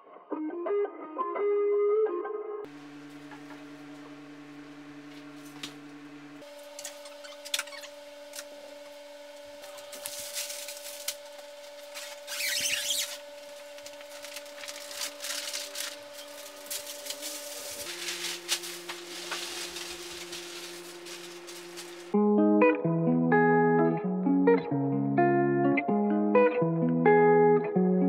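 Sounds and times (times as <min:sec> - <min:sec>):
leaf rustle: 0:02.7 - 0:22.2.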